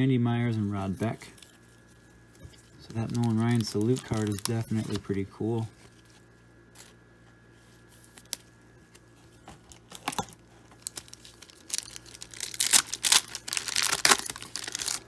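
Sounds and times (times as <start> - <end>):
foil wrapper tearing and crinkling: 2.8 - 5.1, 10.0 - 15.0.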